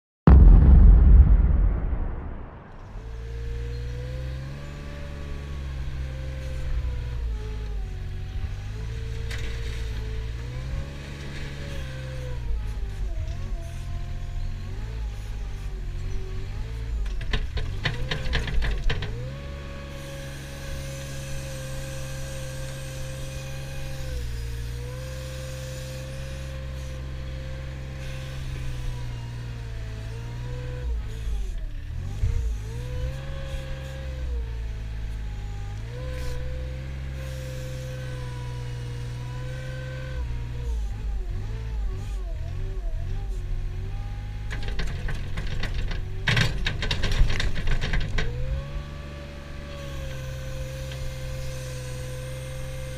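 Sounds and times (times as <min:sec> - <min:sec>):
loader diesel engine and hydraulics: 0:03.0 - 0:52.9.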